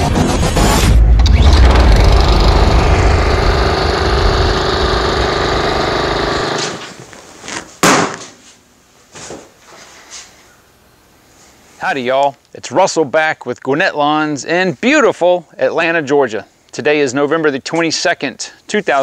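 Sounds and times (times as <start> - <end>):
deep rumble with held tones: 0.5 - 6.6.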